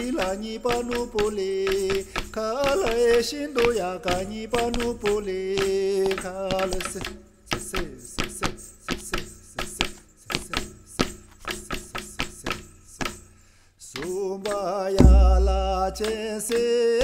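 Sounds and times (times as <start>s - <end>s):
person singing ornamented melody: 0.0s - 7.2s, 13.9s - 17.0s
drum strikes: 15.0s - 16.6s.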